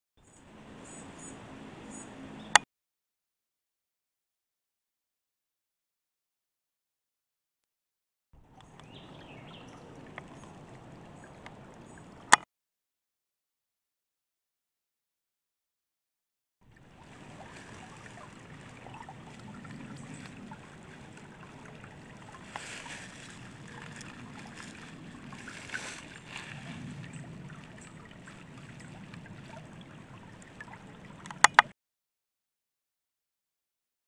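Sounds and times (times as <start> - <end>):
stream gurgling over rocks: 8.4 - 12.4, 16.7 - 31.7.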